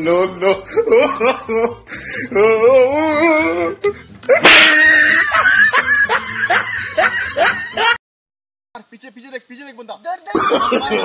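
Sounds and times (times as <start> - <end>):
laughter-like voice sounds: 0.4 - 2.6, 4.3 - 8.0, 10.3 - 11.0.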